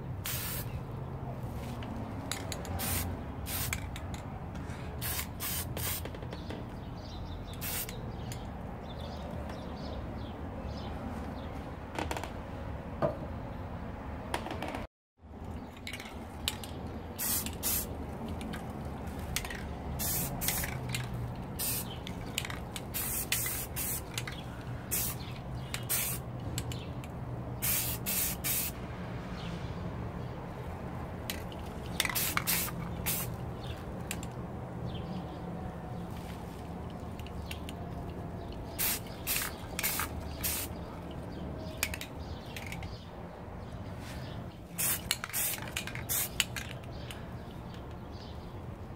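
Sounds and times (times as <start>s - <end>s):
spray paint can hissing: 0.2s - 0.7s, 2.6s - 3.9s, 5.0s - 6.0s, 7.6s - 8.0s, 17.2s - 17.9s, 19.2s - 26.2s, 27.6s - 28.8s, 31.3s - 33.4s, 38.7s - 40.8s, 44.8s - 46.6s.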